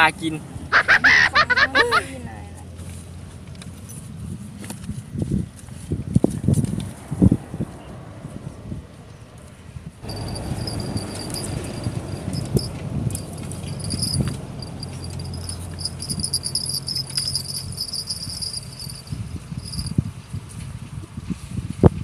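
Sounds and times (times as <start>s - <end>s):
insects chirring: 10.0s - 20.0s.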